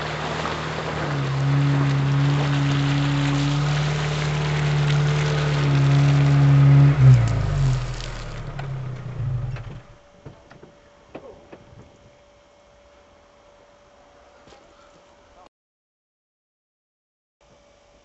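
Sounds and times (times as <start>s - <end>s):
car engine running: 0.0s - 10.4s
tyres rushing on wet ground: 0.0s - 10.4s.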